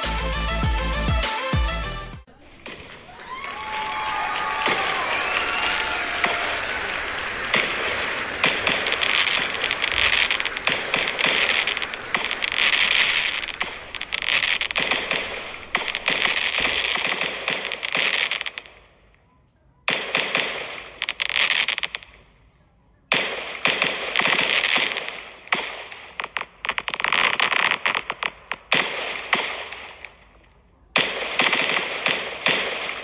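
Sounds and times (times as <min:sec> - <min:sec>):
fireworks crackling: 0:00.0 - 0:01.6, 0:02.2 - 0:33.0
dull firework booms: 0:06.2 - 0:18.2.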